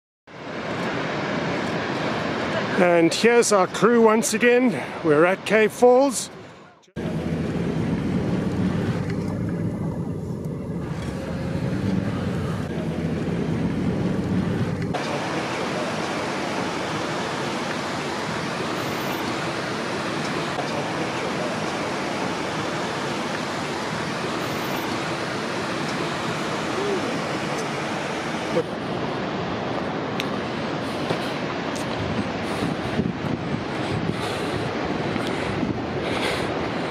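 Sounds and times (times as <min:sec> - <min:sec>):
vehicle driving on road: 0:00.3 - 0:03.9, 0:06.3 - 0:36.9
steady rushing noise: 0:00.3 - 0:36.9.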